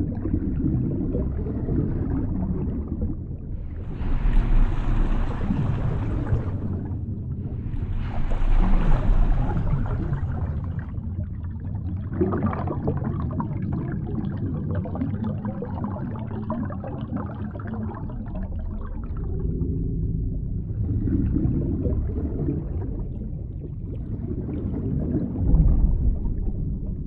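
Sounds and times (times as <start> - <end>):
low underwater rumble: 0.0 - 27.0
underwater wave turbulence: 0.6 - 11.5
deep underwater thump: 25.3 - 27.0.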